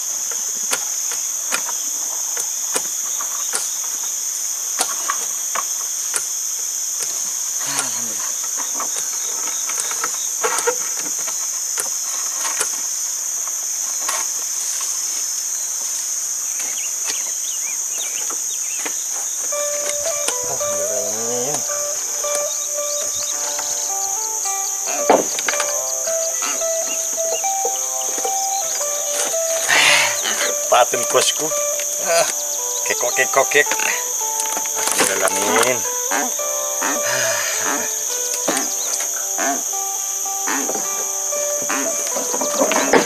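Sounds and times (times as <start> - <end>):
insect chorus drone: 0.0 - 43.0
music: 19.5 - 43.0.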